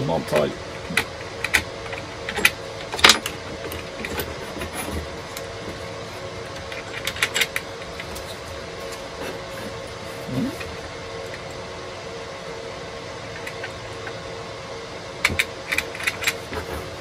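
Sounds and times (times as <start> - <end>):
clicks and knocks of handled parts: 0.3 - 9.8, 15.2 - 17.0.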